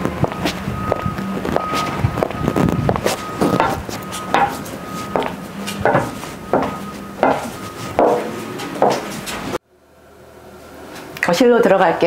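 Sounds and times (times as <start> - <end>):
high heels clicking on stone: 0.2 - 9.2.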